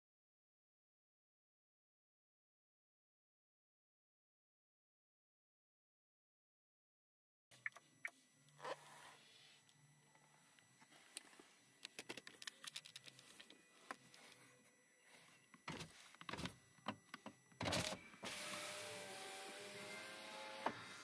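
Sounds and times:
electric window motor running: 15.1 - 21.0.

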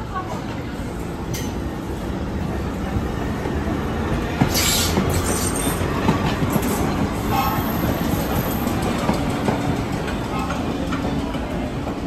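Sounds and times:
subway train rumbling on rails: 0.0 - 12.0
wheels clicking over rail joints: 4.3 - 12.0.

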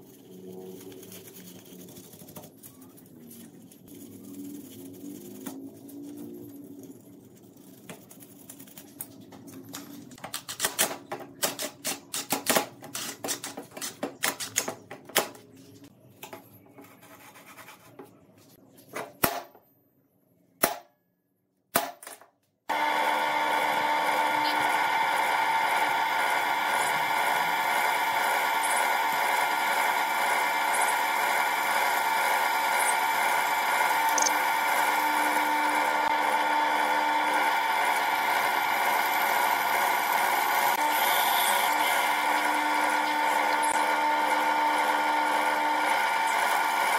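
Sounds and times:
drill press drilling steel: 22.7 - 46.9.

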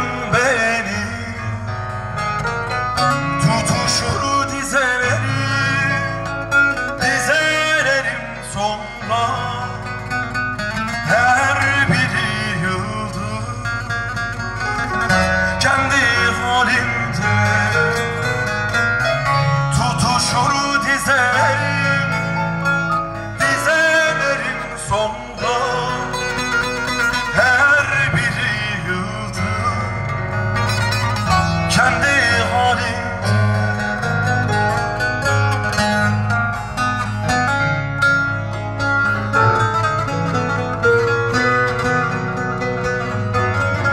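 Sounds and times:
man singing into a microphone: 0.0 - 2.3, 2.9 - 34.5
keyboard accompaniment: 0.0 - 43.9
plucked and strummed lute: 0.0 - 43.9.

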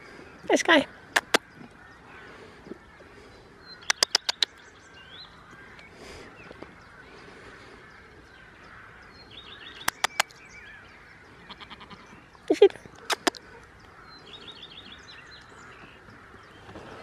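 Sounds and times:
birds chirping faintly: 0.0 - 17.0
sharp clicks: 1.2 - 1.4, 3.8 - 4.5, 9.8 - 10.4.

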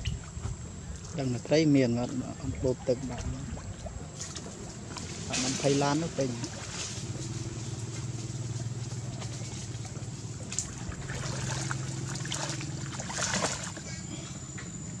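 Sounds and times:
steady low hum: 0.0 - 15.0
monkeys splashing in water: 2.7 - 8.1, 8.8 - 13.9.

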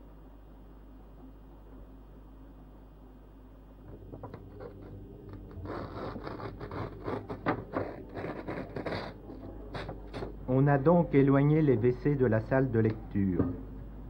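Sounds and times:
paper pages tearing: 5.5 - 10.3.

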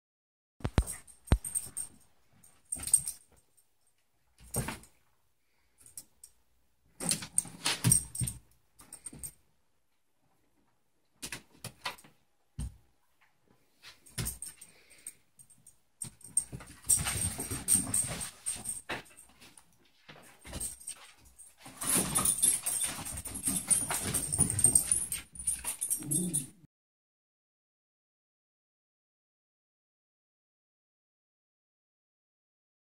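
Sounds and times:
metallic jingle: 0.6 - 2.0, 2.7 - 3.2, 14.2 - 19.4, 20.4 - 26.6.

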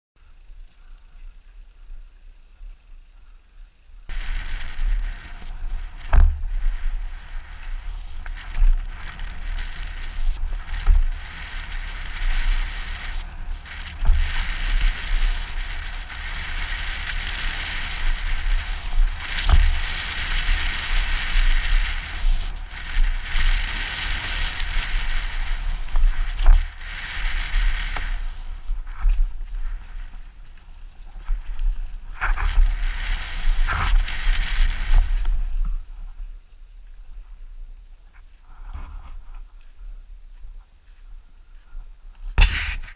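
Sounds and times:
bicycle tyre and wind rush: 0.2 - 42.9
wind rumble on microphone: 0.4 - 42.9
bike knocking over bumps: 4.1 - 28.2.

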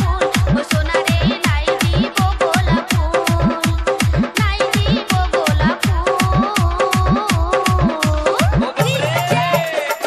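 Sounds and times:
electronic kick drums: 0.0 - 9.5.

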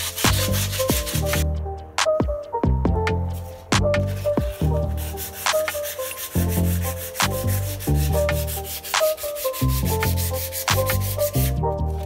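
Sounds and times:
sandpaper rubbing on wood: 0.0 - 1.4, 4.0 - 11.6
background music with beat: 0.0 - 12.0.

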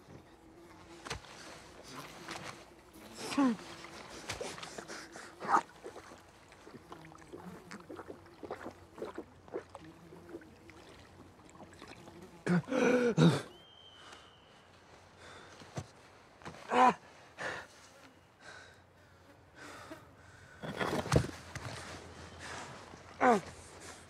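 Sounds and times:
person slurping water from puddle: 3.0 - 12.6.

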